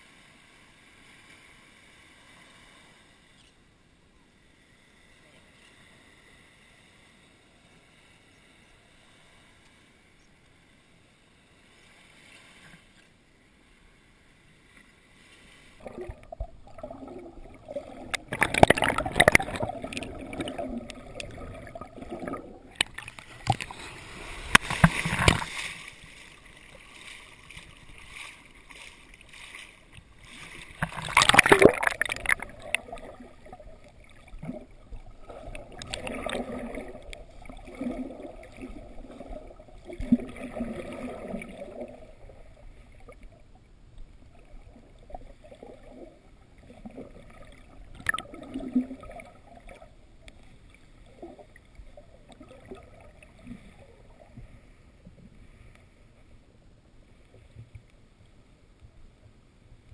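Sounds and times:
surf water splashing: 10.8s - 56.2s.

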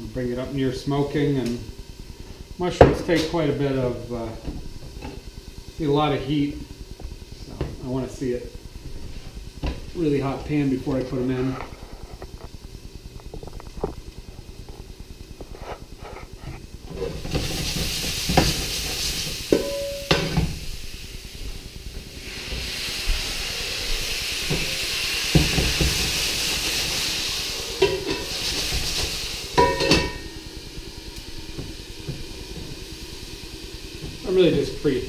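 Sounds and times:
mushrooms sizzling in hot oil: 0.0s - 35.0s
pan and utensils clanging: 19.5s - 20.5s, 29.6s - 30.3s.

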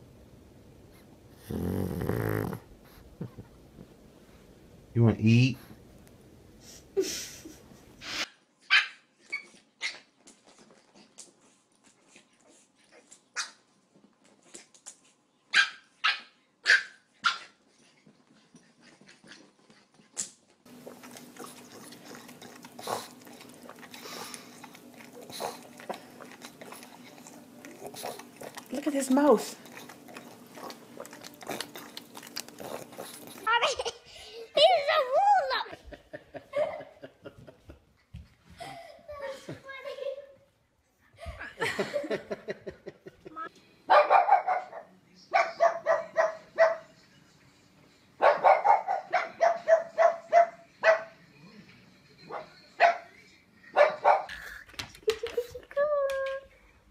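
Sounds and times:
dog barking rapidly: 15.5s - 17.5s, 43.9s - 44.8s, 45.4s - 46.8s, 48.2s - 51.1s.

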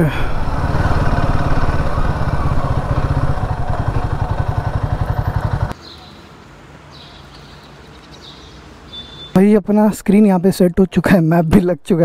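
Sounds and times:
quiet street background: 0.0s - 12.0s
motorcycle engine pulsing: 0.1s - 5.7s
faint bird chirps: 6.9s - 9.4s.

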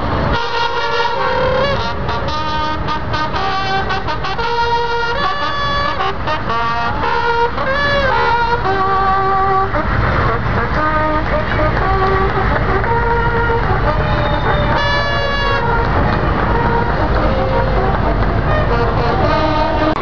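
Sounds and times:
held pitched notes: 0.0s - 20.0s
vehicle engines rumbling past: 0.0s - 20.0s.

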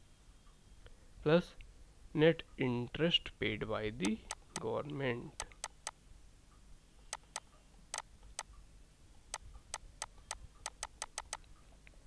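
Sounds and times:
stylus tapping on pen tablet: 9.7s - 11.4s.

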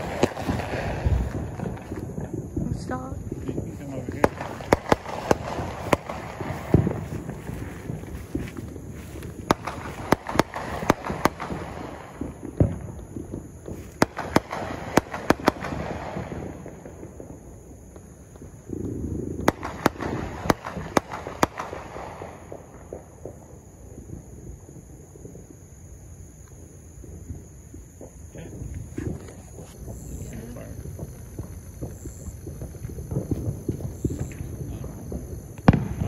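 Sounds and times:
fireworks bangs and crackling: 0.0s - 36.0s.

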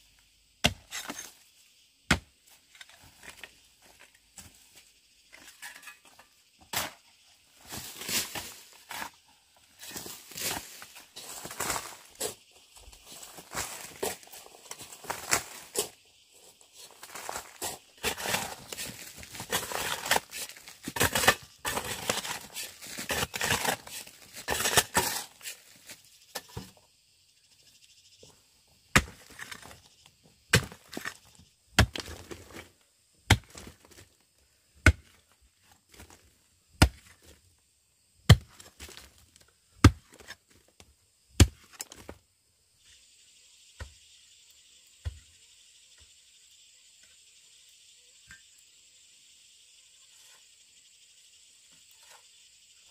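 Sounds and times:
insects droning: 0.0s - 52.9s
pickaxe striking rock: 0.6s - 1.3s, 2.1s - 2.3s, 18.0s - 25.2s, 28.9s - 29.7s, 30.5s - 31.2s, 31.8s - 32.4s, 33.3s - 33.7s, 34.8s - 35.1s, 36.8s - 37.1s, 38.3s - 39.0s, 39.8s - 40.2s, 41.4s - 42.1s
scraping and crunching of stone: 0.6s - 1.4s, 9.8s - 16.0s, 16.8s - 26.7s, 28.9s - 32.7s, 33.3s - 34.1s, 38.3s - 40.5s.

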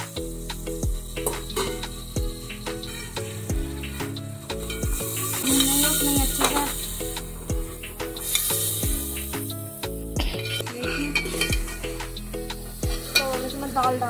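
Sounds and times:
light sizzle: 0.0s - 14.0s
music with deep bass beat: 0.0s - 14.0s
spoon stirring in a steel pot: 10.4s - 11.9s.

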